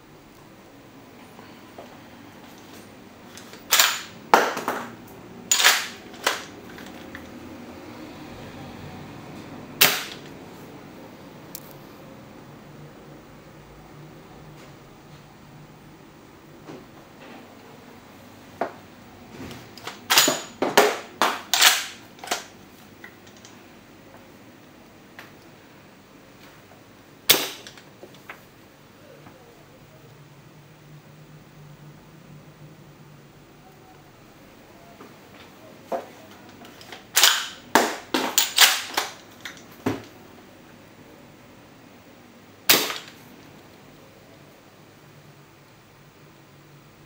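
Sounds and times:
rifle bolt metallic clacks: 5.5 - 6.4.

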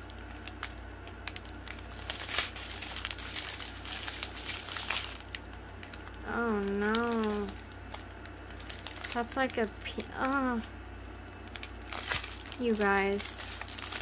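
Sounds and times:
plastic bags crinkling: 0.0 - 14.0
person humming: 6.2 - 7.6.

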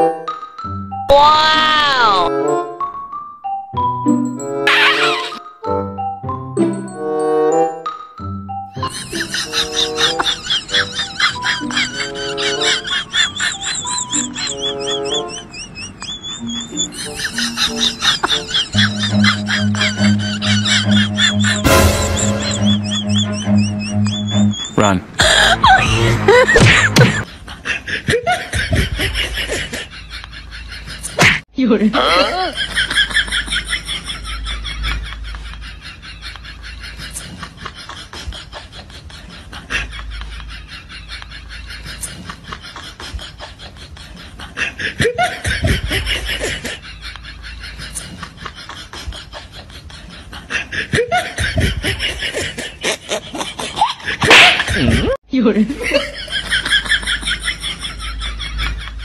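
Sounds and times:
background music: 0.0 - 15.5, 16.3 - 27.2
people laughing: 8.8 - 31.2, 32.0 - 59.0.

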